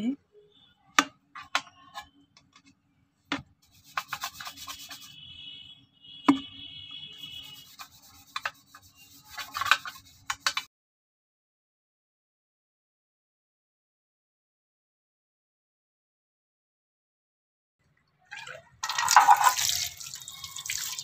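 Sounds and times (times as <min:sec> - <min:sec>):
plastic knocks: 0:03.3 - 0:03.5, 0:06.3 - 0:06.5
toothbrush scrubbing plastic: 0:03.6 - 0:05.2, 0:07.1 - 0:10.7, 0:18.8 - 0:21.0.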